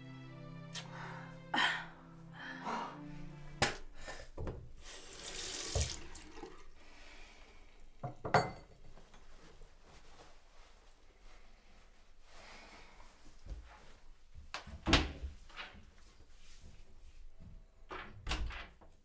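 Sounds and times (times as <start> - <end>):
soft music: 0.0 - 6.8
tap water running into basin: 4.8 - 7.8.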